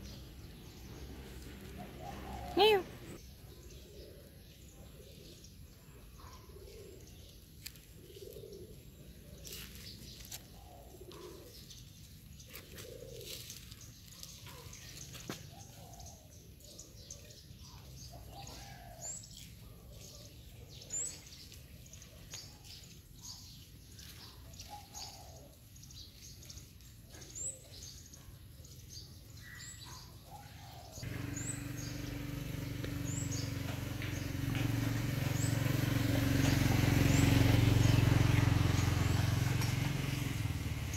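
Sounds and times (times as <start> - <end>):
small birds chirping: 0.0 - 40.9
low cooing calls: 0.9 - 5.5.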